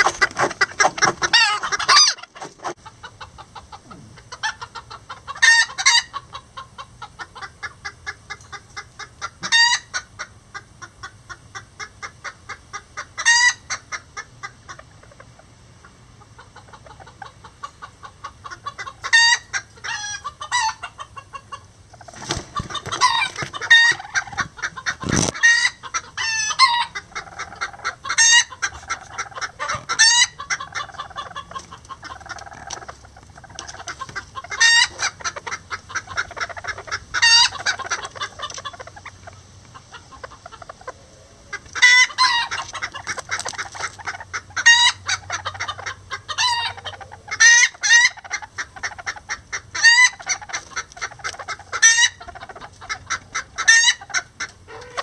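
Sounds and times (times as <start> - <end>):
chickens clucking: 0.0 - 55.0.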